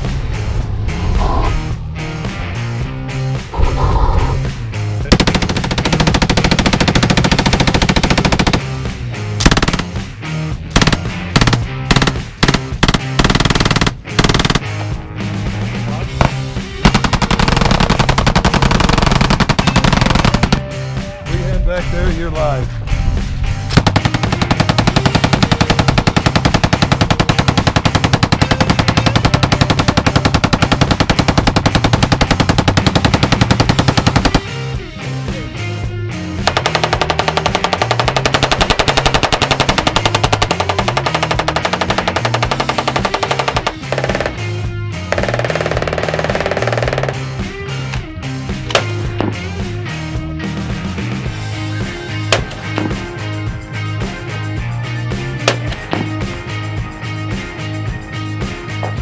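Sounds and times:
background music: 0.0s - 59.0s
machine gun bursts: 5.1s - 8.6s, 9.4s - 9.9s, 16.9s - 20.6s, 36.5s - 44.3s, 45.2s - 47.2s.

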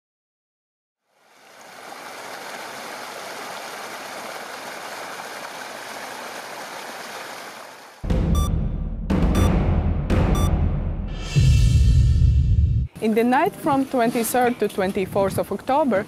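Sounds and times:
rushing water noise: 1.1s - 8.0s
deep hit of dramatic music: 8.0s - 12.9s.

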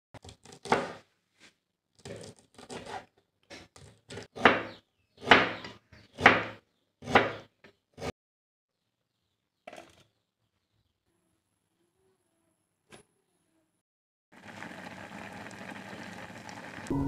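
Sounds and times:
knife chopping on wooden board: 3.6s - 8.1s.

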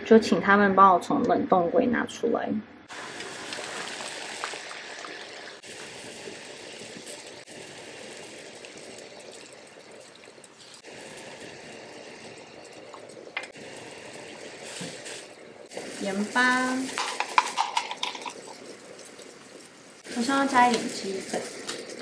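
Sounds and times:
water bubbling at a boil: 2.9s - 22.0s.

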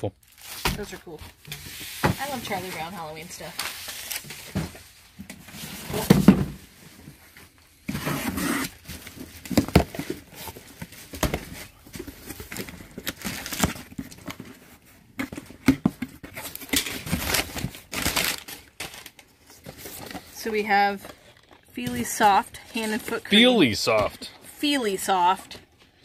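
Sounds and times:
cardboard and paper rustling: 0.2s - 26.0s
box knocks and thump: 5.9s - 6.6s, 9.5s - 10.2s
box cutter scraping through tape: 7.9s - 8.8s.

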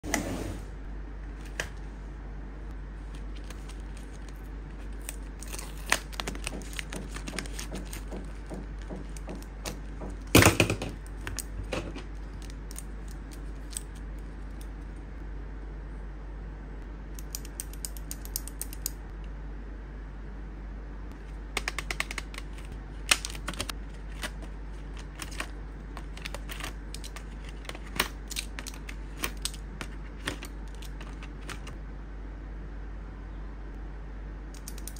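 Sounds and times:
steady low hum: 0.0s - 34.9s
plastic pens clattering: 3.2s - 14.7s, 21.6s - 31.7s.

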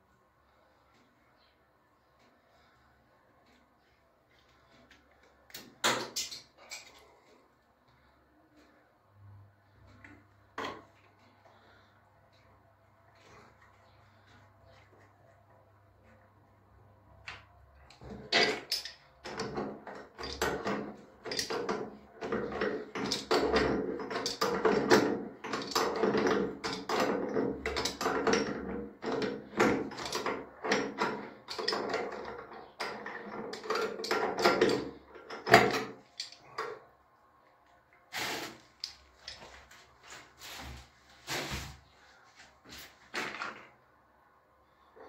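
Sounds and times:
wrench and tap fittings clanking: 18.0s - 36.8s.

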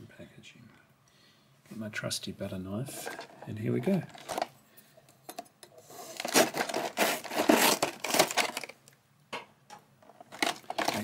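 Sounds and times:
cardboard ripping and crinkling: 3.9s - 4.5s, 6.0s - 8.8s, 10.3s - 11.0s.

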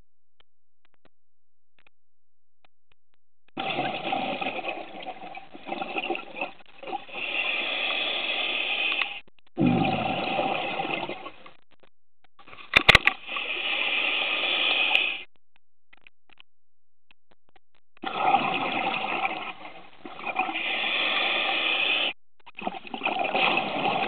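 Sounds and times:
underwater exhaled bubbles rushing: 3.6s - 7.3s, 9.6s - 11.4s, 18.0s - 20.8s, 22.6s - 24.0s
sharp clicks: 11.4s - 13.2s, 14.9s - 18.1s.

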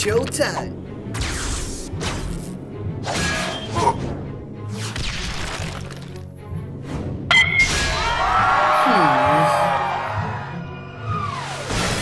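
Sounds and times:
cartoon action music: 7.3s - 12.0s.

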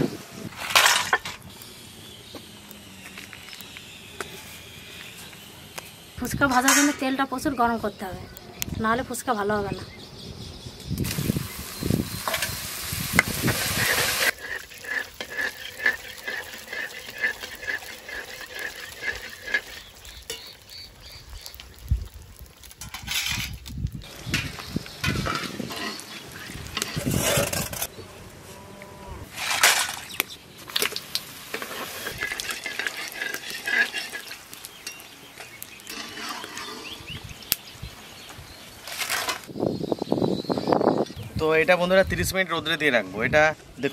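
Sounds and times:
oil bubbling: 11.0s - 22.9s, 30.1s - 37.6s
dough sizzling in hot oil: 11.0s - 27.9s, 30.1s - 37.7s.

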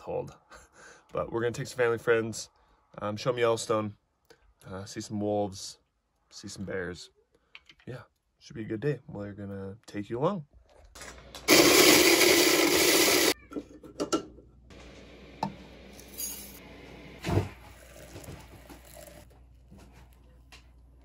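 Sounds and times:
electric coffee grinder running: 11.5s - 13.4s.

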